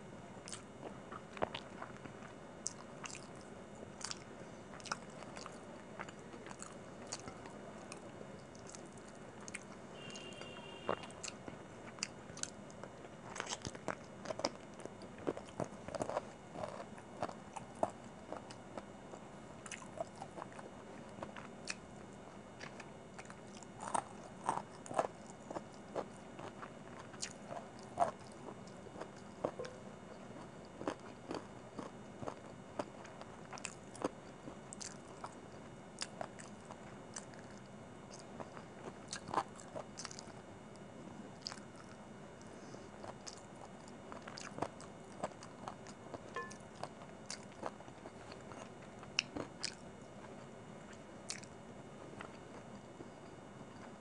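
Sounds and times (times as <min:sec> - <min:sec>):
chewing and biting chicken: 0:00.4 - 0:18.9, 0:19.6 - 0:21.8, 0:30.4 - 0:35.4, 0:36.0 - 0:40.4, 0:41.4 - 0:42.0, 0:43.0 - 0:51.6.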